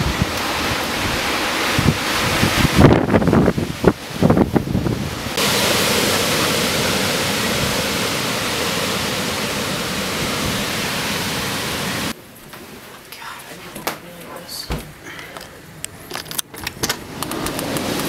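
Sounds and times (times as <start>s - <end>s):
wind buffeting microphone: 0.0s - 12.2s
heavy rain and wind hiss: 0.0s - 18.0s.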